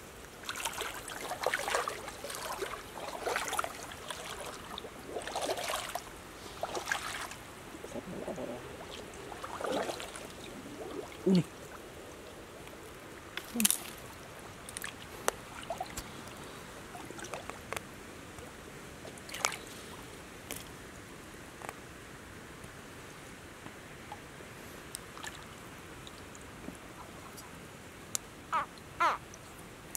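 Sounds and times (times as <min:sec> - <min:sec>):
stream water trickling: 0:00.0 - 0:21.8, 0:23.9 - 0:29.9
short splashes: 0:00.4 - 0:07.4, 0:08.8 - 0:11.5.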